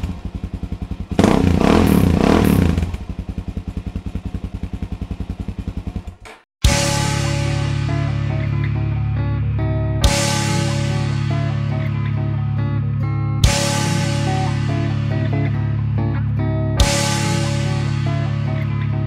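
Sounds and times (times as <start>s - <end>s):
low bass tones: 0.0s - 3.5s, 6.6s - 19.0s
motorcycle engine idling and revving: 0.0s - 8.7s, 13.4s - 19.0s.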